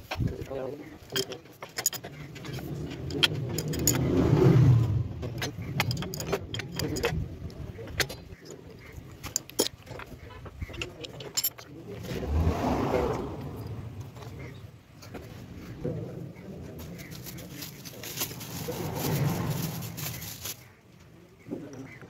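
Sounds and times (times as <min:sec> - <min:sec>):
metal tools clinking: 0:00.1 - 0:04.4, 0:05.2 - 0:12.2
vehicle passing: 0:02.2 - 0:07.1, 0:11.8 - 0:16.3, 0:16.9 - 0:20.6.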